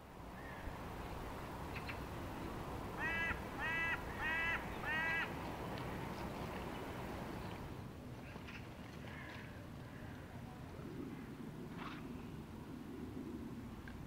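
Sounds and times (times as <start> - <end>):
crow cawing: 3.0 - 5.3, 9.1 - 10.1.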